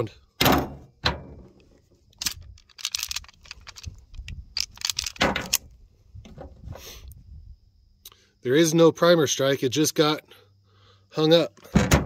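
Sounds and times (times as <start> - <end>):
pistol slide clicking and clacking: 2.2 - 5.6.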